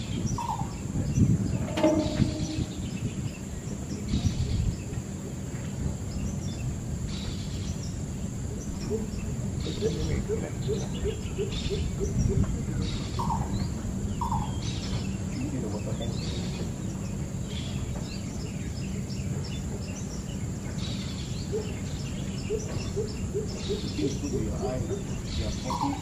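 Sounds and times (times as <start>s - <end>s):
small birds chirping: 0.0s - 26.0s
short falling bird notes: 1.4s - 3.5s
bird low repeated hooting: 1.4s - 3.8s.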